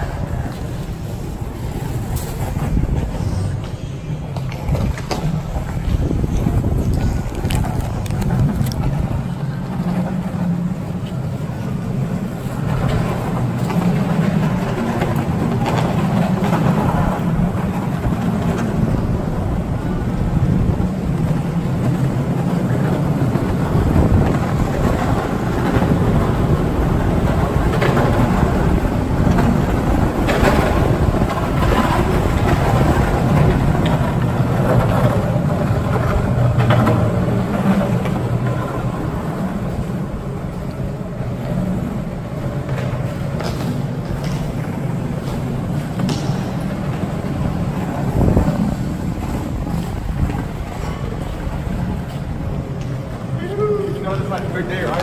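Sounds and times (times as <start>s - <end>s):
skateboard wheels rolling on concrete: 0.0s - 55.0s.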